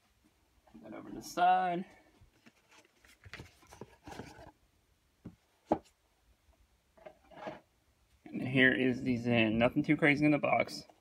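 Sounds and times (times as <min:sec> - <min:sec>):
box scraping and rustling: 0:02.5 - 0:04.6, 0:07.0 - 0:07.7.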